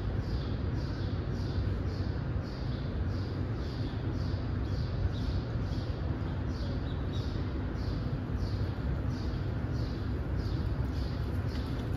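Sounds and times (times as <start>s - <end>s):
low rumble of indoor hall: 0.0s - 11.9s.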